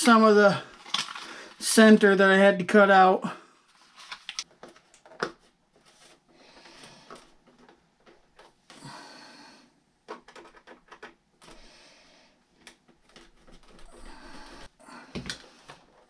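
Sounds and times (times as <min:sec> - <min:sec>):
faint clicks and scraping: 0:00.7 - 0:01.6
soft rustles: 0:03.7 - 0:08.7.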